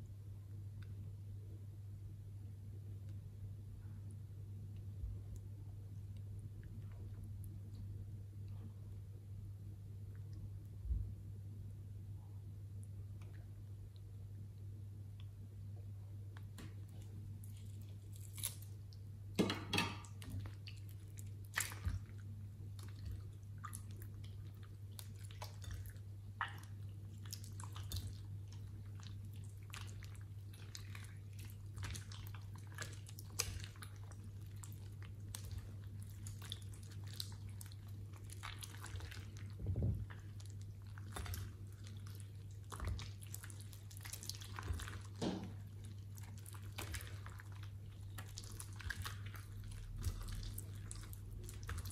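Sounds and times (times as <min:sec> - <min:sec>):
steady low hum: 0:00.0 - 0:51.9
slime squelching: 0:12.7 - 0:19.4, 0:20.0 - 0:51.9.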